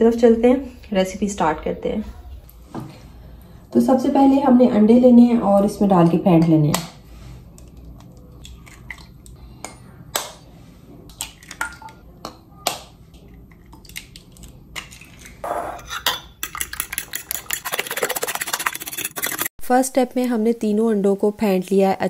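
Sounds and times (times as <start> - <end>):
eggs being beaten in a bowl: 16.4 - 19.5.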